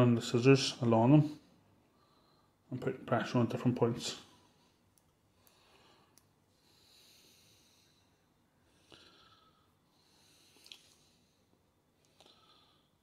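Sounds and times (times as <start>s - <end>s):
soft breathing: 1.2s - 2.7s, 4.2s - 13.0s.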